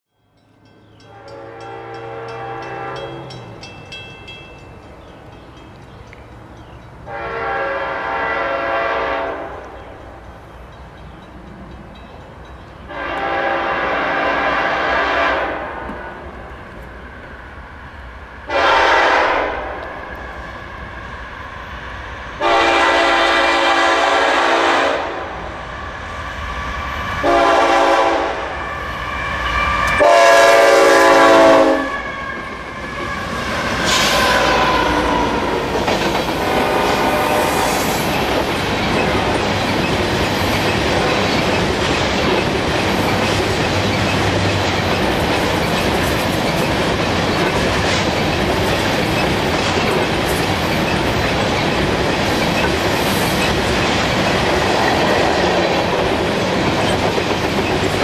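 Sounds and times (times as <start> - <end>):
locomotive air horn blasts: 1.1 - 3.3, 7.1 - 9.7, 12.9 - 15.9, 18.5 - 20.0, 22.4 - 25.3, 27.2 - 28.6, 29.2 - 35.4, 36.4 - 37.8
diesel locomotive rumble: 29.9 - 58.0.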